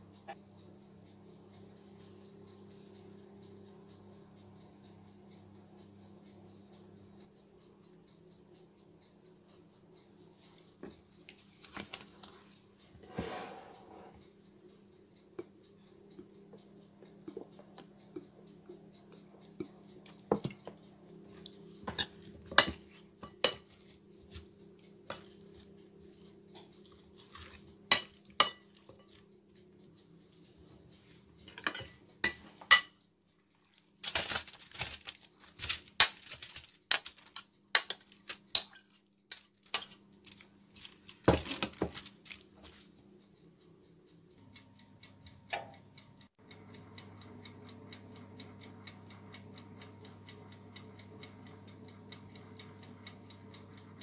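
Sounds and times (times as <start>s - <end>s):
metal spoon clinking on glass bowl: 39.7s - 40.0s.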